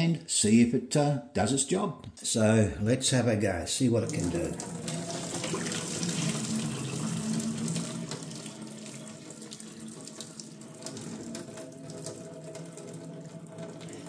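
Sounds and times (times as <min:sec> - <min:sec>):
water pouring into a steel sink: 0:04.0 - 0:14.0.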